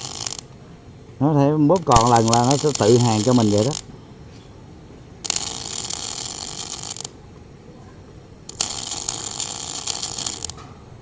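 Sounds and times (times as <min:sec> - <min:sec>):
welding arc crackling: 0:00.0 - 0:00.5, 0:01.7 - 0:03.9, 0:05.2 - 0:07.3, 0:08.4 - 0:10.7.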